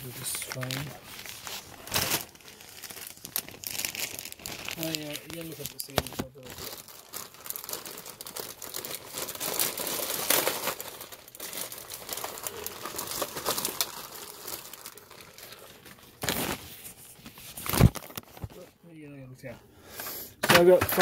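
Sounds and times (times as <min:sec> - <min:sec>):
plastic bag crinkling: 0:00.0 - 0:18.6.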